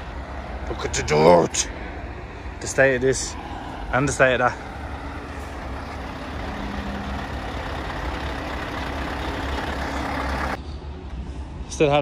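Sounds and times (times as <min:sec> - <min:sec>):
truck diesel engine running: 0:04.2 - 0:10.6.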